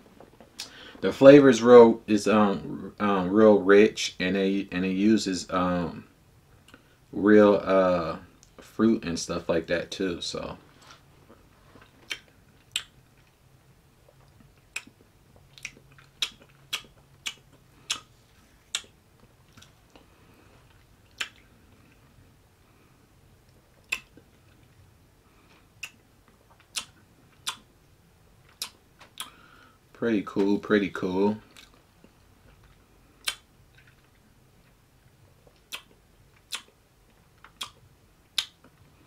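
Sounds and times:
wet mouth clicks and lip smacks: 12.0 - 13.0, 14.1 - 18.1, 18.7 - 20.0, 21.1 - 21.5, 23.8 - 24.2, 25.8 - 27.6, 28.5 - 29.4, 35.4 - 37.8, 38.4 - 38.6.

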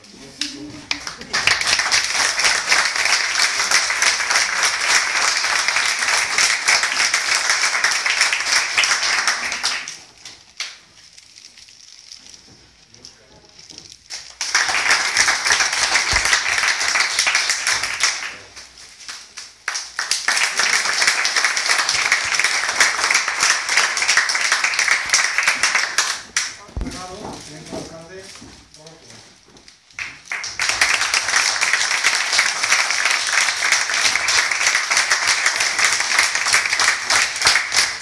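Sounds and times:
audience applauding: 0.8 - 10.2, 14.2 - 26.8, 30.0 - 38.0.

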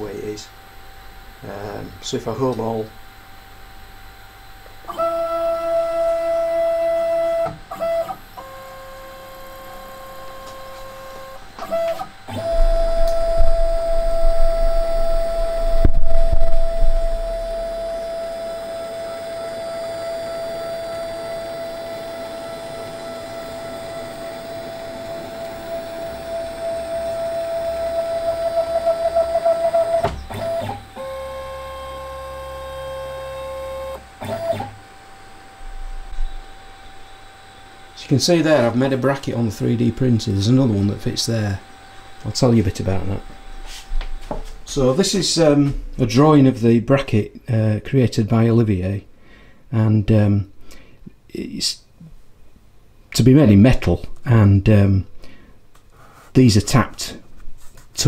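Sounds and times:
stepper motors whining: 4.2 - 45.4.

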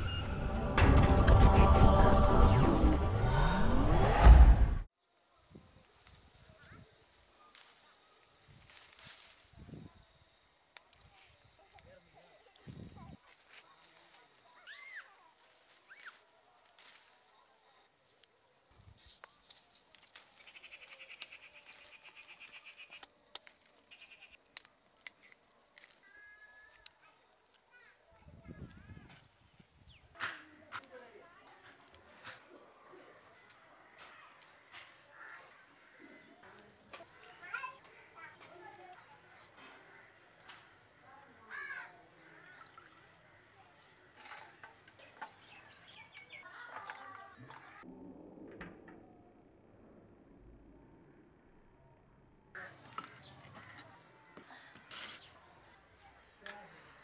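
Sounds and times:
leaves rustling: 5.0 - 26.3
plant stems snapping: 7.5 - 9.5, 19.2 - 22.4, 23.0 - 26.1
crows cawing: 33.8 - 36.5, 41.4 - 43.5, 52.6 - 54.7.

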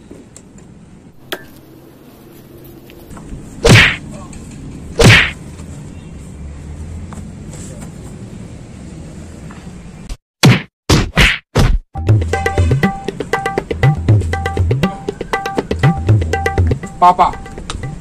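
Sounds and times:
punch whacks: 3.6 - 4.0, 5.0 - 5.4, 10.4 - 11.8.

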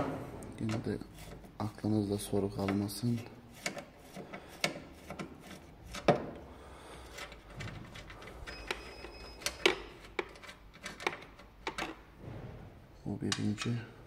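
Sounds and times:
screwdriver clicking and scraping: 2.6 - 6.4, 7.0 - 12.0.

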